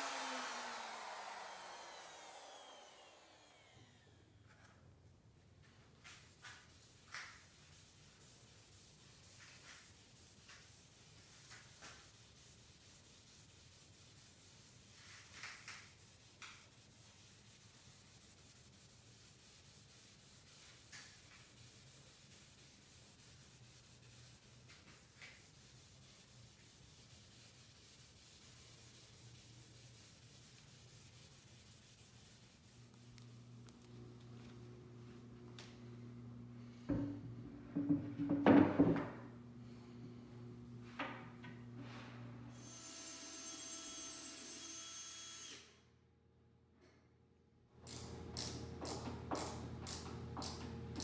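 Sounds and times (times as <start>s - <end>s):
cloth pad rubbing wood: 6.3s - 35.7s.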